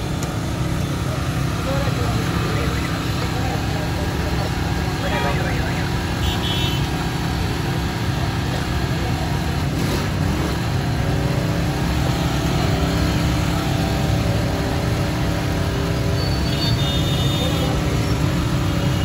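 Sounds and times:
generator engine droning: 0.0s - 9.7s.

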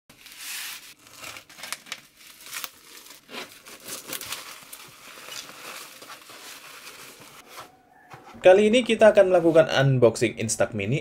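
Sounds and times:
plastic wrapping and tape crinkling: 0.1s - 7.6s.

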